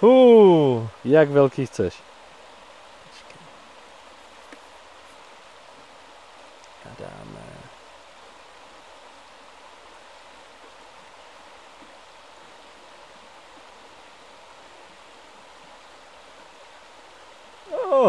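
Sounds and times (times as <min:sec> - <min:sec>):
river rushing over rocks: 0:04.8 - 0:18.0.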